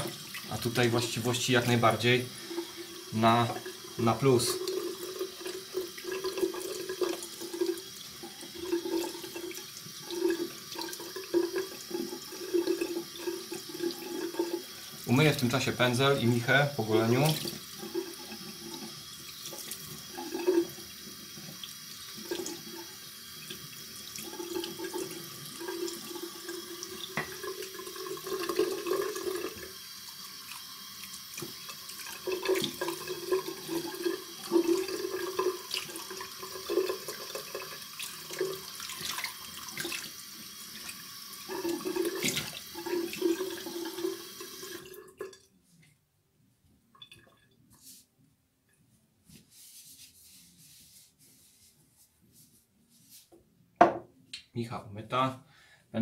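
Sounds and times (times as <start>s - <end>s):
tap water running into sink: 0.0s - 45.4s
small knocks and splashes: 42.2s - 42.6s.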